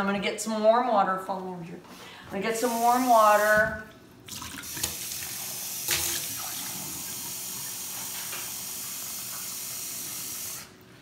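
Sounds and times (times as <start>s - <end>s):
faucet running into glass container: 4.3s - 10.6s.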